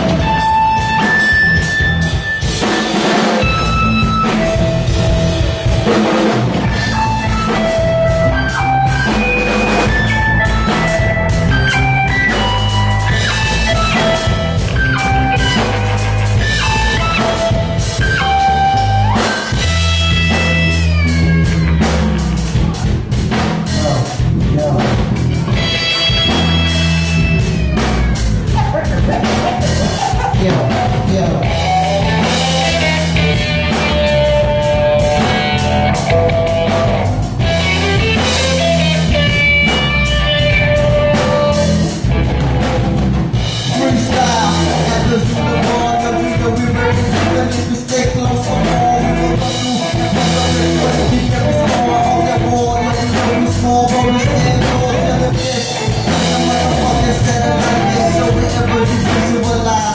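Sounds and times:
drum kit beat: 0.0 - 59.9
electric guitar: 0.0 - 59.9
heavy bass notes: 0.0 - 59.9
keyboard: 0.0 - 59.9.

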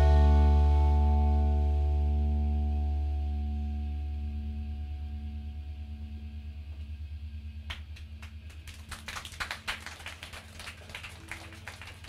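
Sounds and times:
low pulsing band drone: 0.0 - 10.8
audience clapping: 7.7 - 12.0.

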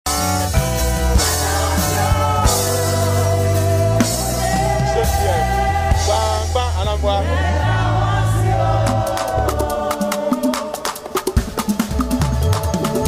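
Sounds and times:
keyboard chords: 0.1 - 10.5
drum kit playing: 0.1 - 13.0
man singing: 1.4 - 7.4.

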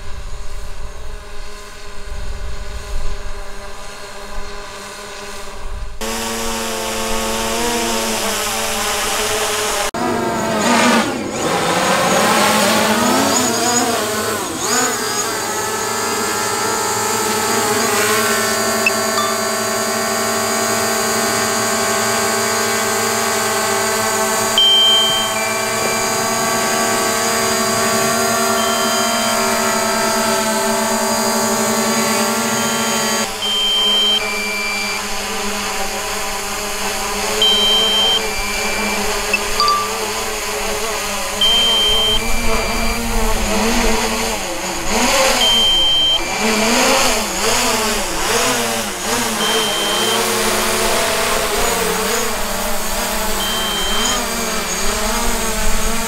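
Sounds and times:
drone propellers whining: 0.2 - 56.0.

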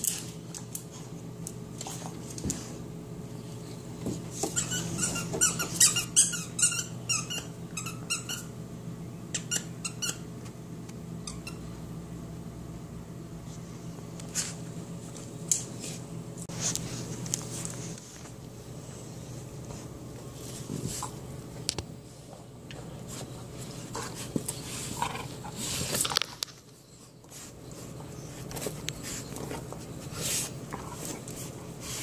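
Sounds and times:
squeaky dog toy squeaking: 4.6 - 8.5.

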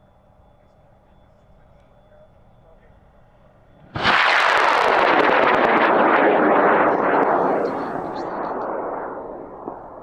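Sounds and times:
rocket motor roaring with crackle: 3.7 - 10.0.

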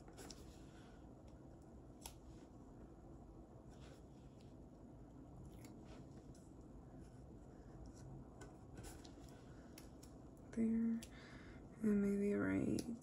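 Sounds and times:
woman speaking: 10.5 - 11.0, 11.8 - 13.0.

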